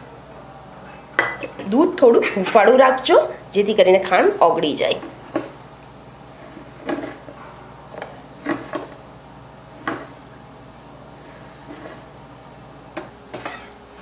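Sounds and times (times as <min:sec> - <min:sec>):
spoon stirring milk: 0:04.9 - 0:13.8.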